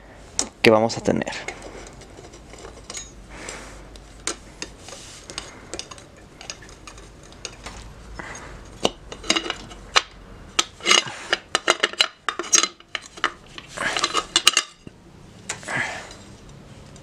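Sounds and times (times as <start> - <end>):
wrench clinking on metal cover: 1.5 - 3.2, 8.8 - 14.9.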